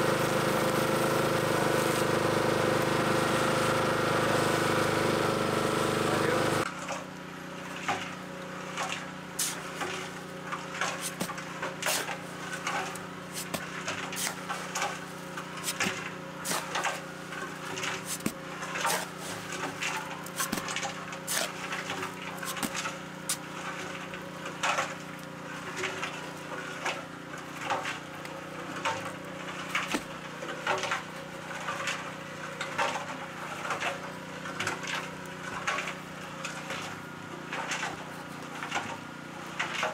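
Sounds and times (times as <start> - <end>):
cement mixer running: 0.0 - 39.9
tools knocking and scraping stone: 10.9 - 12.2, 12.9 - 14.5, 17.8 - 19.2, 19.8 - 21.6, 22.4 - 23.4.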